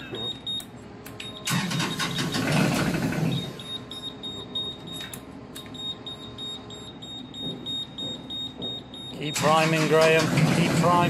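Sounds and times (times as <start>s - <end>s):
diesel engine cranking: 1.4s - 3.4s.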